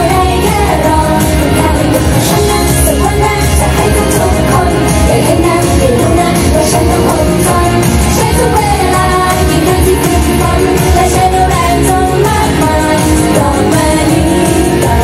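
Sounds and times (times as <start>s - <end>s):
pop song with singing: 0.0s - 15.0s.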